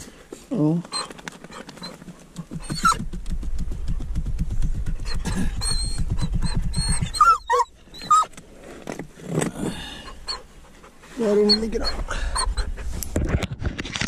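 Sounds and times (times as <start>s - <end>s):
dog whining: 0.8s - 3.1s, 5.0s - 8.4s, 10.0s - 10.5s, 11.2s - 12.8s.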